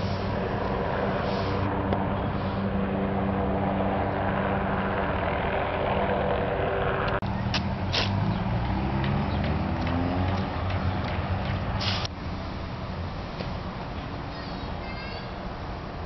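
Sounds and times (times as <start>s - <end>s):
road noise: 0.0s - 16.0s.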